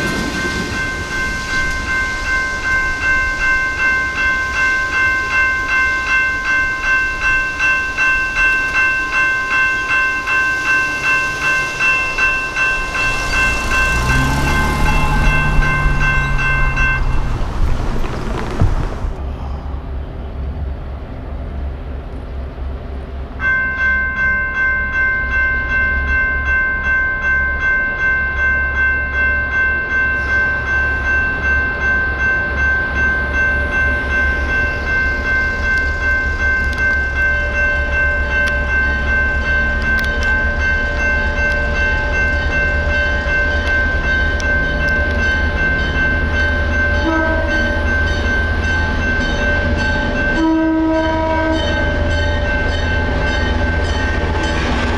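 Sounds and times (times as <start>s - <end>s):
railroad crossing bell ringing: 0.0s - 17.9s, 23.0s - 54.9s
low rumble: 11.8s - 21.9s.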